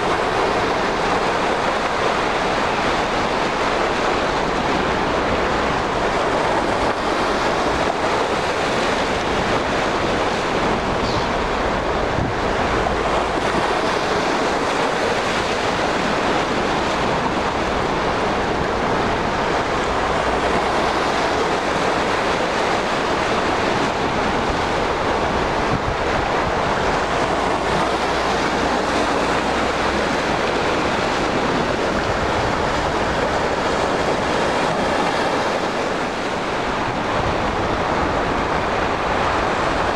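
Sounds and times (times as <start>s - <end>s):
small waves washing: 0.0s - 39.9s
wind buffeting microphone: 0.0s - 39.9s.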